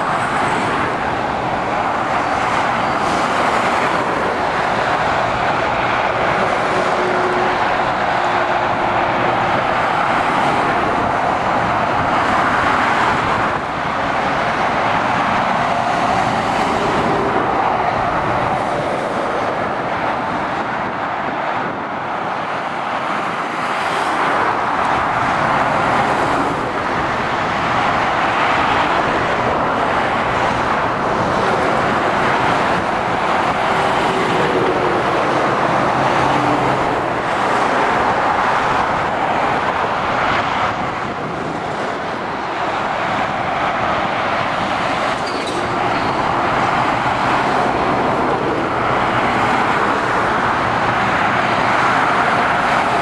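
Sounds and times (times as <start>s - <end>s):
road traffic: 0.0s - 53.0s.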